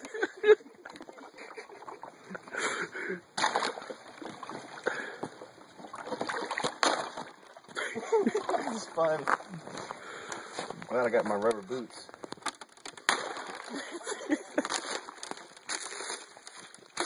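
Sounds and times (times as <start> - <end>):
water splashing: 0.8 - 17.0
ice cracking under boots: 8.4 - 17.0.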